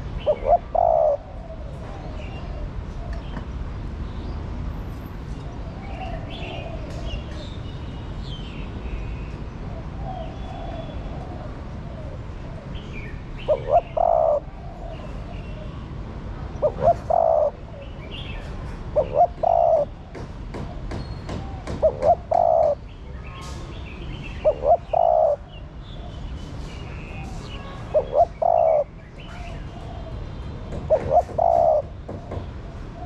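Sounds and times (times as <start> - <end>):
dove cooing: 0.2 - 3.1, 10.0 - 12.7, 13.4 - 15.8, 16.6 - 20.1, 21.6 - 22.8, 24.4 - 25.6, 27.9 - 30.2, 30.8 - 32.2
small birds chirping: 16.5 - 31.8.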